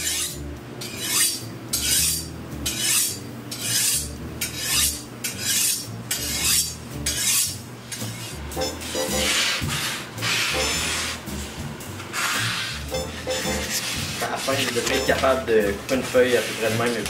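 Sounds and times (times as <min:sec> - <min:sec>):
knife scraping on honing rod: 0:00.0 - 0:11.2, 0:12.2 - 0:15.4.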